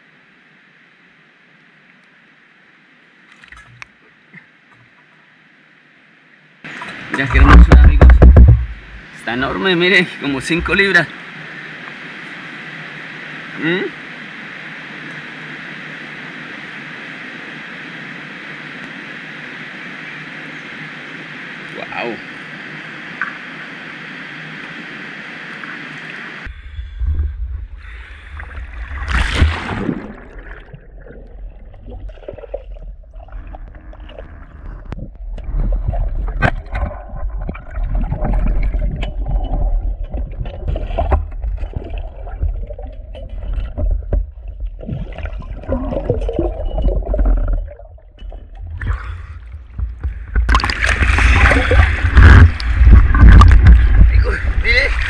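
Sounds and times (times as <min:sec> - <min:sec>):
underwater low rumble: 0:06.7 - 0:09.2, 0:24.6 - 0:55.0
underwater gurgling and bubbles: 0:09.9 - 0:55.0
water splashing: 0:23.1 - 0:55.0.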